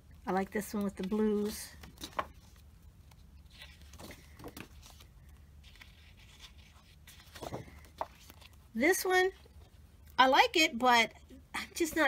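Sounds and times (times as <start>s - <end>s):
paper rustling: 0.5s - 9.8s.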